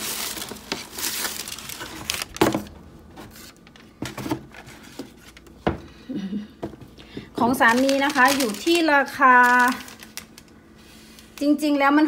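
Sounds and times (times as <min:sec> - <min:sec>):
tissue paper rustling: 0:00.0 - 0:02.3, 0:07.5 - 0:11.6.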